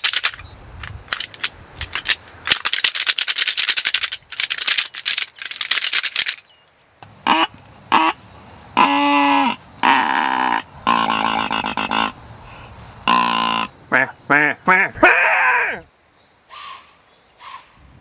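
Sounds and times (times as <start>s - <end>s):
corrugated tube clattering rattle: 0.0s - 6.4s
deer grunt call notes: 8.8s - 12.2s, 13.0s - 15.9s.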